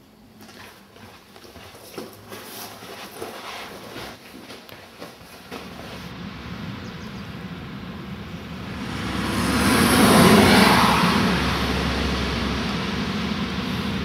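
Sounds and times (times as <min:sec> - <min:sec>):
vehicle passing by: 0:06.1 - 0:14.0.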